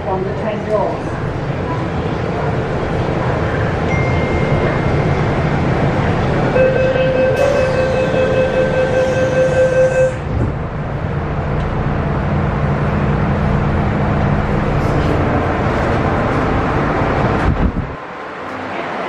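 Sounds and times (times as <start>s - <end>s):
train rumbling: 0.0s - 19.0s
train door warning tone: 3.9s - 5.3s, 6.4s - 10.3s
traction motors humming: 4.9s - 18.1s.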